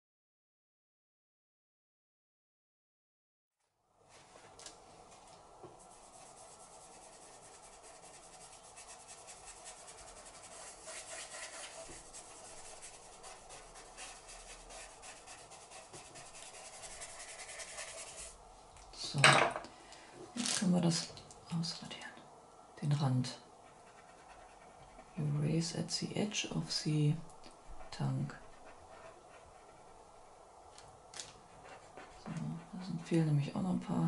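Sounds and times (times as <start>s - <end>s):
drawing tools scratching paper: 6.0s - 18.4s, 23.6s - 25.2s, 27.7s - 30.0s, 31.5s - 33.1s.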